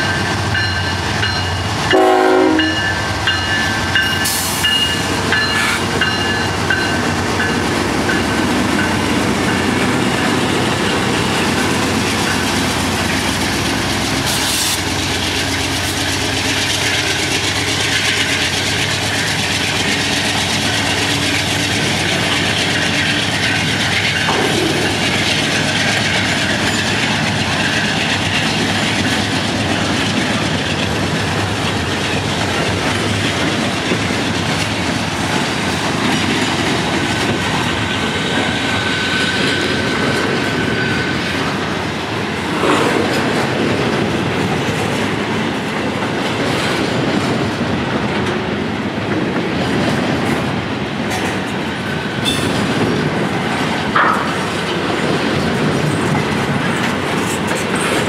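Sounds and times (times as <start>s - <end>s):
train rumbling past: 0.0s - 58.0s
wheels clicking over rail joints: 2.8s - 41.6s, 49.1s - 58.0s
train car clunks: 22.1s - 29.3s, 42.4s - 44.8s, 51.0s - 58.0s.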